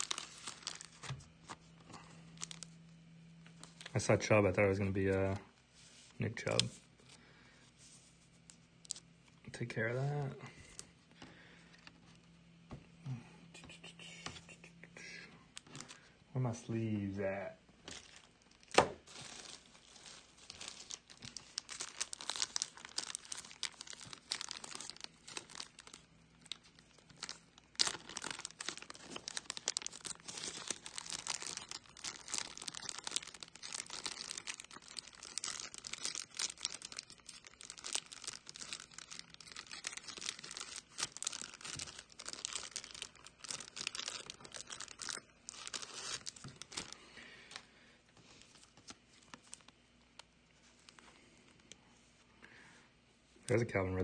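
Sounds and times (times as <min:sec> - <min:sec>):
plastic pack crinkling: 0:00.0 - 0:05.4, 0:08.4 - 0:12.3, 0:15.5 - 0:16.1, 0:17.8 - 0:51.7.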